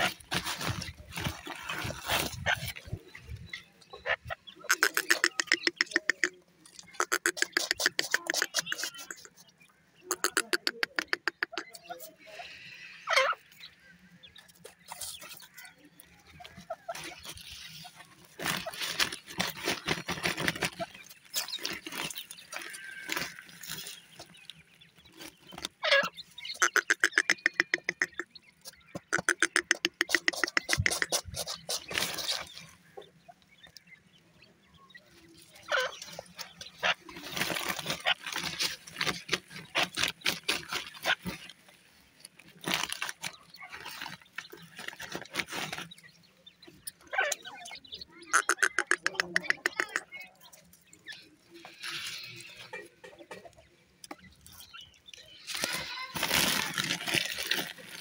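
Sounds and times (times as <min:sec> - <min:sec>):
partridges clucking: 0:04.2 - 0:09.4, 0:10.1 - 0:12.0, 0:25.4 - 0:32.5, 0:46.8 - 0:50.3.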